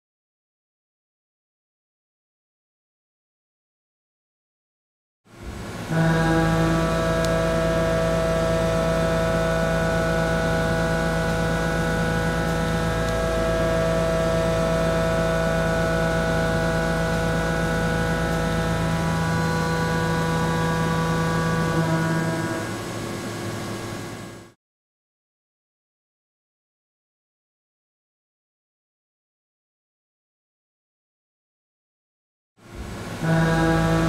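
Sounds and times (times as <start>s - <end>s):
face mill cutting steel: 5.8s - 24.3s.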